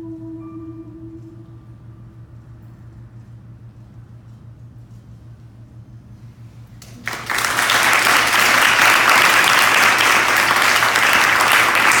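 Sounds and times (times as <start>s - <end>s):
audience applauding: 6.8s - 12.0s.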